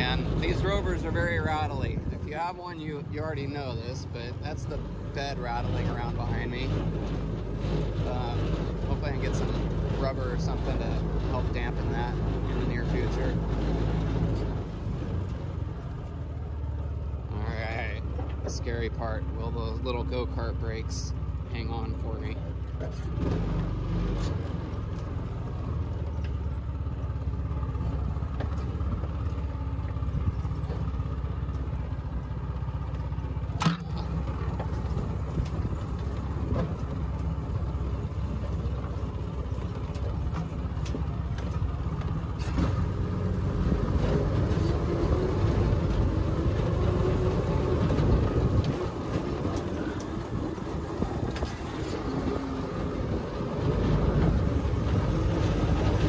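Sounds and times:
cargo bed rattling: 33.3 - 56.0.

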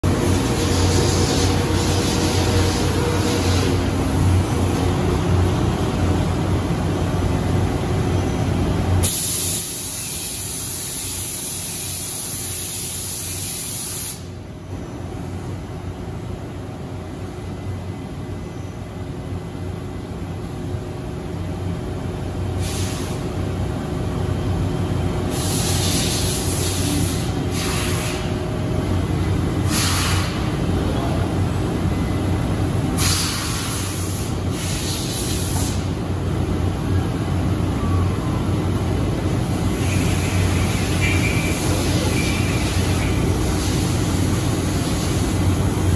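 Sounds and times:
lathe machine noise: 0.0 - 5.8, 39.6 - 45.7
compressed air hissing: 0.1 - 4.2, 9.0 - 14.4, 22.6 - 23.2, 25.3 - 28.4, 29.6 - 30.5, 33.0 - 36.0, 39.6 - 45.8.

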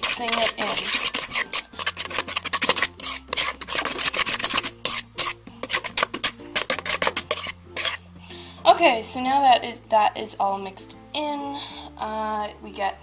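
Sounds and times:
spoon scraping metal bowl: 0.0 - 8.0.

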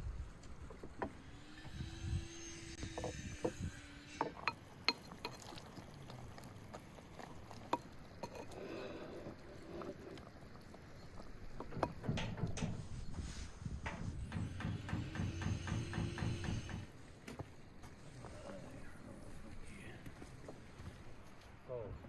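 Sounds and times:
metal spoon clinking on clay pot: 4.2 - 5.6, 7.7 - 8.6.

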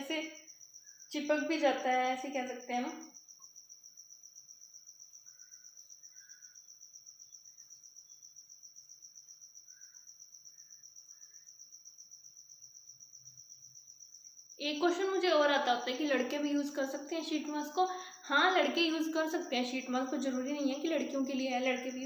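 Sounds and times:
cricket chirping: 0.0 - 22.0.

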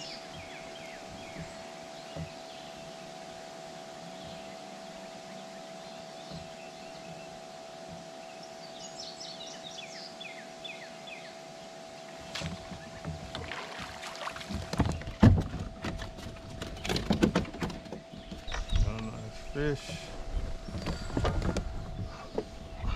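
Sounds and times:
steady hum: 0.0 - 22.9
knocks and clatter on a kayak: 0.1 - 2.6, 6.2 - 7.3, 12.2 - 19.1, 19.8 - 22.9.

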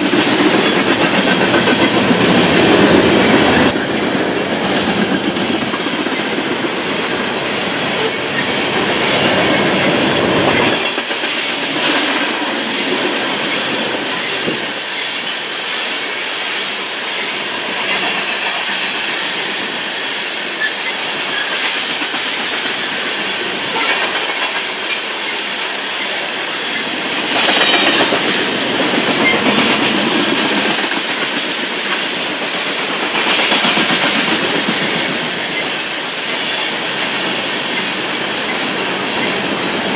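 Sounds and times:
train wheels clattering on rails: 0.0 - 39.9.

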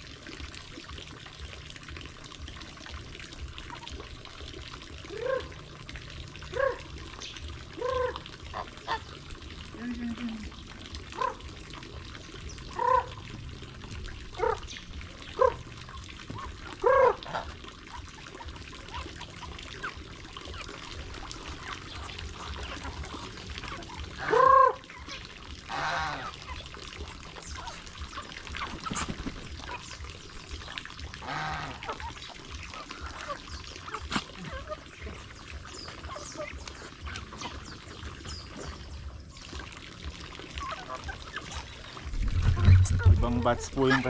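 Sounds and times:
ducks quacking: 7.8 - 9.2, 12.7 - 13.3, 16.3 - 26.7, 31.2 - 38.0, 40.5 - 44.0
chickens calling: 16.3 - 26.7, 27.3 - 30.5, 40.5 - 44.0.

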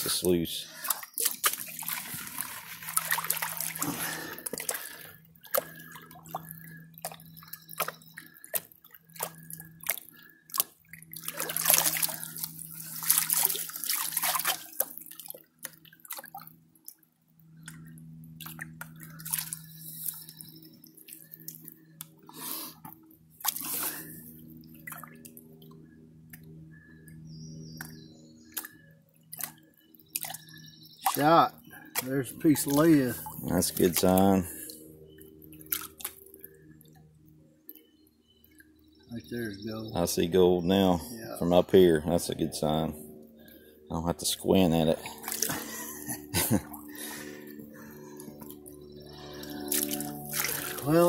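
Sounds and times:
faint low hum: 0.0 - 51.0
water sloshing in pan: 0.7 - 16.6.

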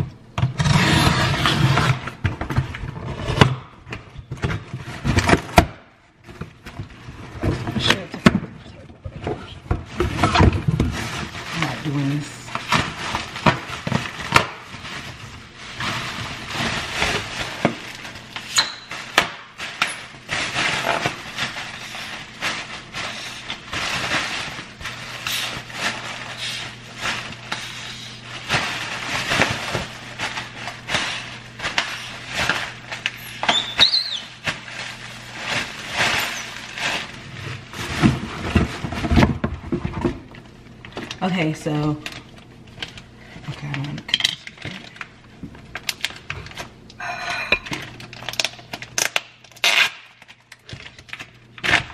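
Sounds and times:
plastic packaging crinkling: 9.8 - 41.3, 42.0 - 51.9.

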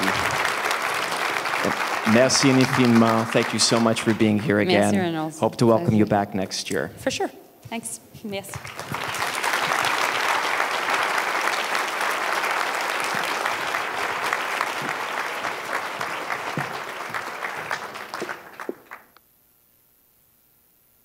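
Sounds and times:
audience applauding: 0.0 - 5.0, 8.5 - 19.2.

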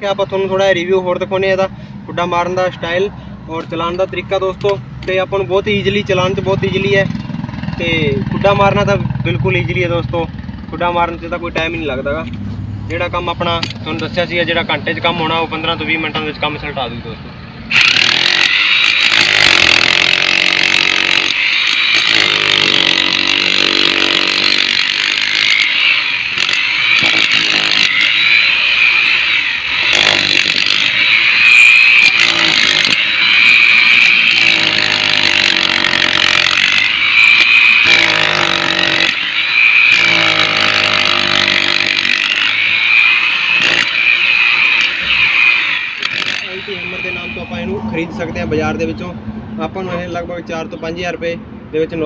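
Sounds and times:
demolition hammer breaking brick: 17.8 - 25.6, 26.4 - 28.0, 29.9 - 30.9, 37.9 - 39.2.

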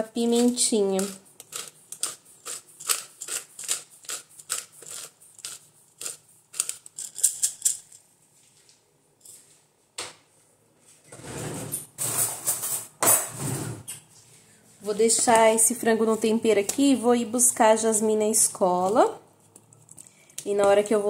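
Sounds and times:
pepper grinder clicking: 0.4 - 7.8.

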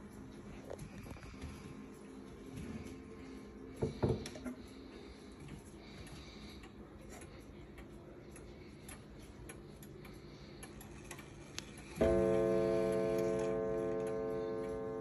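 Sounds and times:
pendulum clock ticking: 6.0 - 15.0.

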